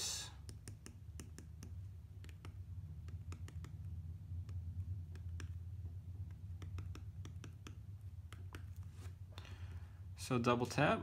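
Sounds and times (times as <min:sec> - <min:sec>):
low steady hum: 0:00.0 - 0:11.0
stylus tapping on glass screen: 0:00.4 - 0:08.8.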